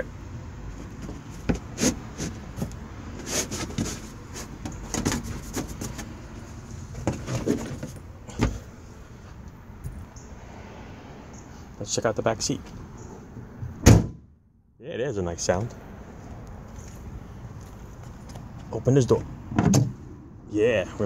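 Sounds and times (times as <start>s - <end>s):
knocks and clunks in car trunk: 0.9s - 1.8s, 7.0s - 8.6s, 13.7s - 14.3s, 19.5s - 20.0s.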